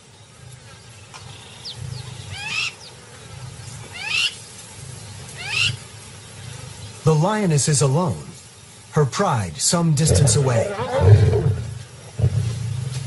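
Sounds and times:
lion growling: 9.9 - 13.0.

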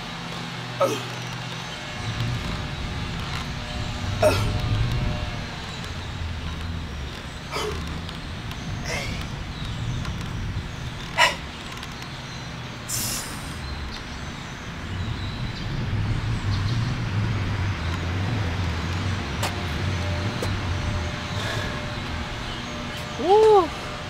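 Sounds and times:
vehicle engine rumbling: 0.0 - 24.0.

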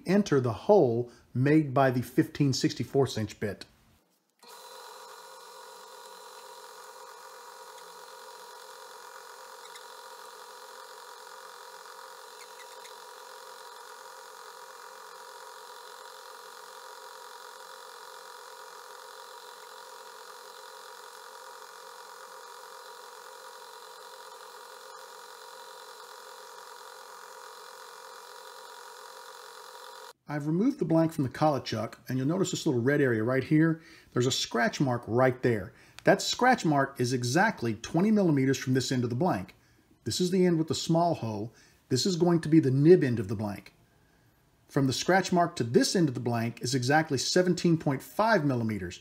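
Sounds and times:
metal lathe humming: 4.4 - 30.2.

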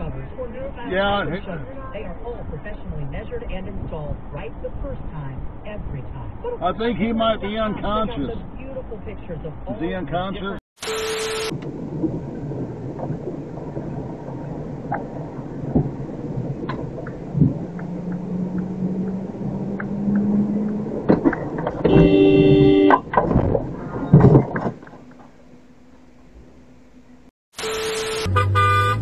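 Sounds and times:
vehicle engine and road noise: 0.0 - 10.6, 11.4 - 29.0
vehicle horn blaring: 21.8 - 23.1, 27.6 - 29.0.

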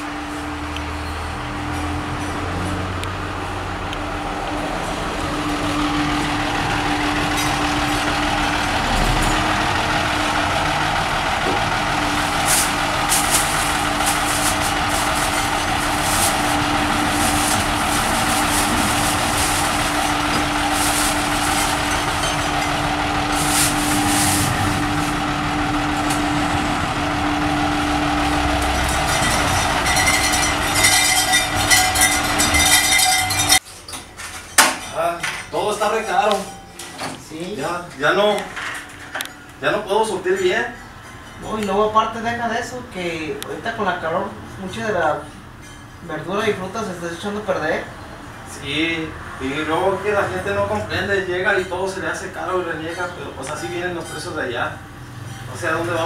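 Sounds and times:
vehicle humming: 0.0 - 33.6.

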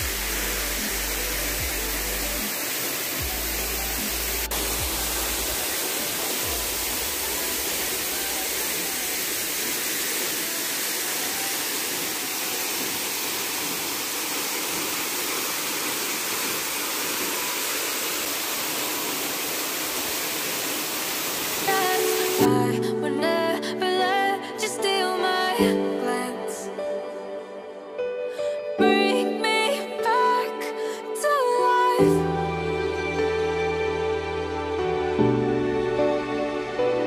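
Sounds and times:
waterfall rushing into pool: 0.0 - 22.7.

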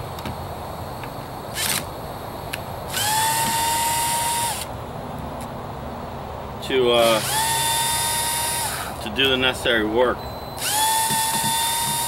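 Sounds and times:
cordless screwdriver motor running: 1.5 - 1.8, 2.9 - 4.7, 7.0 - 8.9, 10.6 - 12.0.

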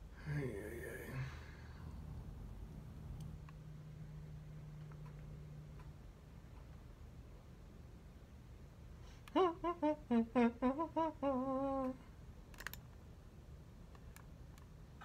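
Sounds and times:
man humming a tune: 9.2 - 12.1.

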